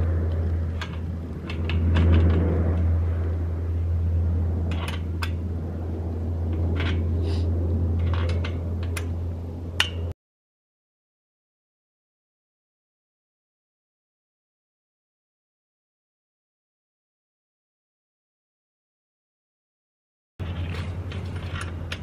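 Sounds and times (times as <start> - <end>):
steady low rumble: 0.0 - 10.2, 20.4 - 22.0.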